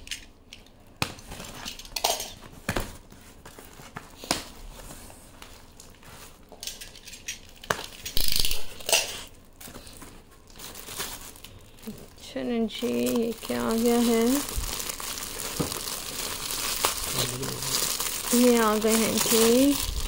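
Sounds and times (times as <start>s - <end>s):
packaging rustling and scraping: 1.2s - 20.0s
items knocking and clinking: 15.4s - 16.0s.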